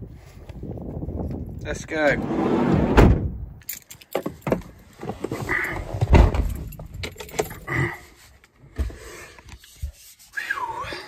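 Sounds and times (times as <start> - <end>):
dull thump: 2.8 - 3.4
keys jangling: 3.6 - 4.7, 6.4 - 7.7.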